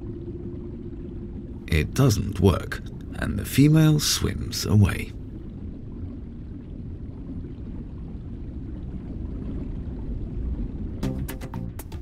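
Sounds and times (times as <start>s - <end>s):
low underwater rumble: 0.0s - 3.9s, 4.5s - 11.2s
faint watery gurgle: 0.0s - 11.1s.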